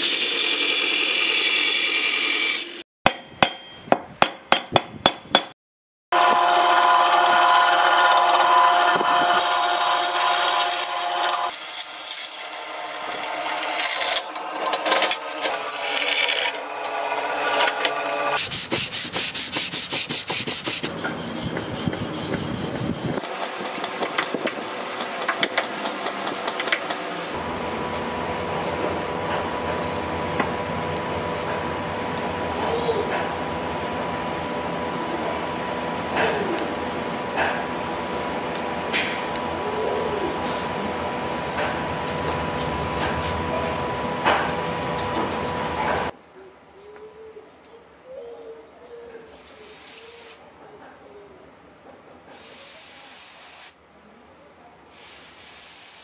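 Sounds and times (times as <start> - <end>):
sharp metal strikes: 3.1 - 5.6.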